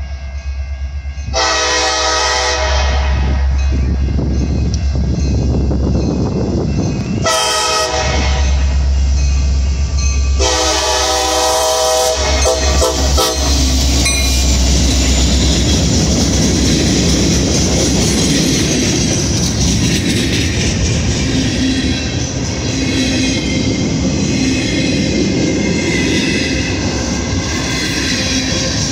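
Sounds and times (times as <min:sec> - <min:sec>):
train wheels rumbling on rail: 0:00.0 - 0:28.9
locomotive horn blasts: 0:01.3 - 0:03.6, 0:07.2 - 0:08.8, 0:10.4 - 0:13.6.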